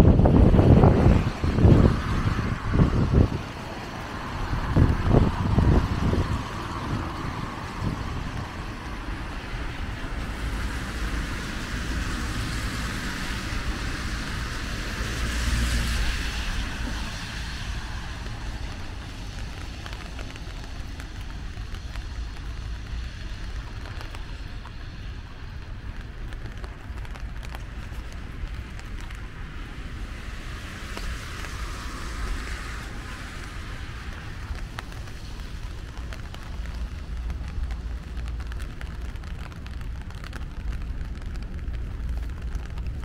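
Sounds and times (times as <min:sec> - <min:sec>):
vehicle passing: 0:00.0 - 0:20.9
rain hissing: 0:00.0 - 0:43.0
traffic on wet streets: 0:00.0 - 0:43.0.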